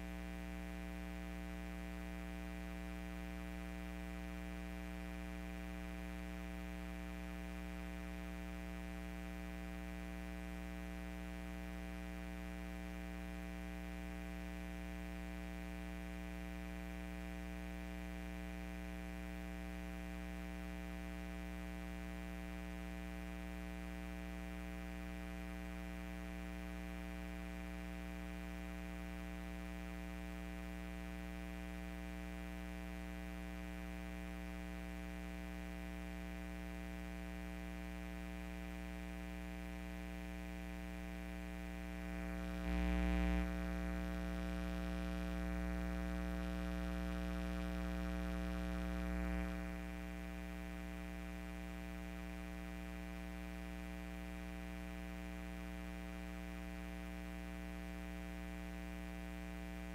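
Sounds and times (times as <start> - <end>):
electrical hum: 23.6 - 59.9.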